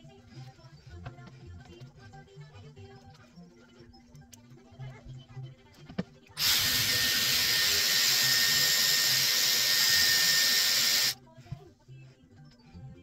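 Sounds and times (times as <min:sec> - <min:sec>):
hair styler blowing air: 0:06.4 - 0:11.2.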